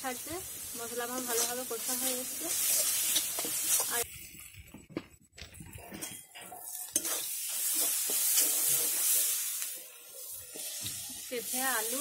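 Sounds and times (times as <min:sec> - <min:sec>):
oil sizzling: 0:00.0 - 0:05.1, 0:05.7 - 0:12.0
metal spatula scraping pan: 0:05.8 - 0:10.8.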